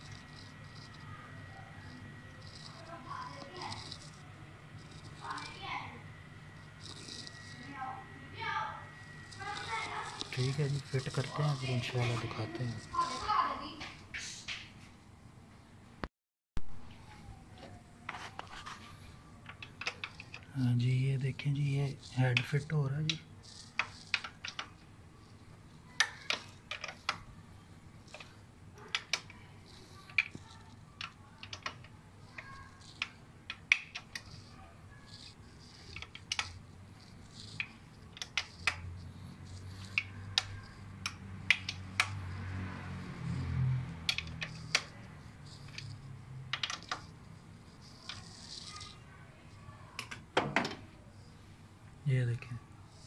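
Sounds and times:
wrench clicking on bolts: 43.5 - 44.9.

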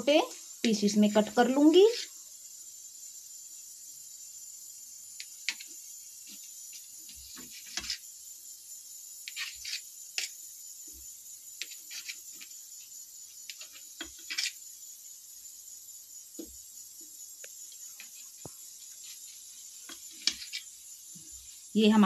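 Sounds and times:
knife cutting bread: 6.3 - 8.1, 9.2 - 10.4, 11.6 - 12.6, 13.4 - 14.7, 19.9 - 20.8.

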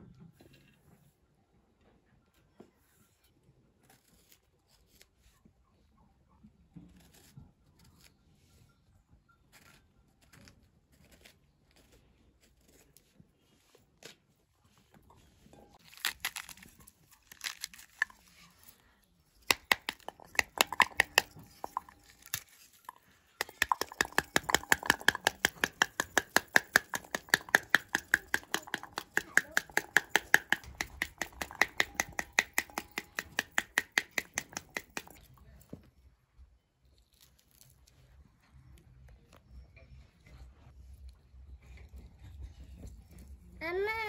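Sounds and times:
fruit rind tearing and cracking: 15.8 - 18.8, 19.4 - 35.2, 37.0 - 37.9
knife tapping fruit over metal bowl: 19.5 - 22.4, 23.4 - 35.2.

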